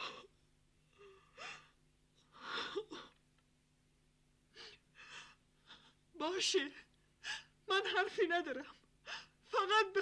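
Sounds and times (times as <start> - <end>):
woman sobbing: 0.0 - 3.2.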